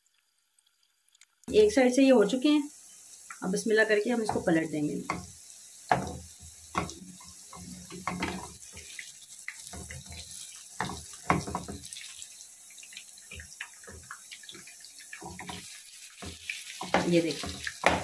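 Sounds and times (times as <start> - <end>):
pakoras sizzling in hot oil: 0.0 - 18.0
metal spoon scraping and knocking pan: 4.2 - 8.9, 9.6 - 12.0, 13.3 - 18.0.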